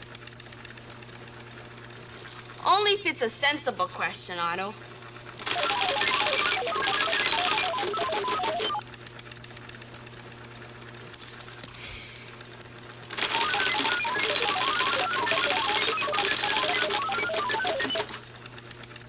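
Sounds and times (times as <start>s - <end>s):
computer terminal clattering: 5.4s - 8.8s, 13.1s - 18.2s
high electronic beeps: 5.4s - 8.8s, 13.1s - 18.2s.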